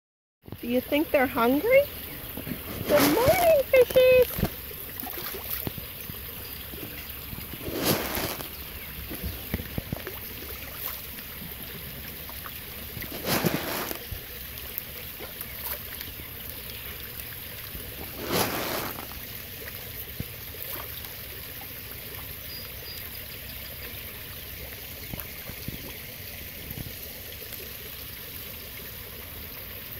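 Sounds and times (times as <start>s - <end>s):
pond water trickling: 0.4s - 29.9s
fish splashing at surface: 2.3s - 16.2s, 17.0s - 21.0s.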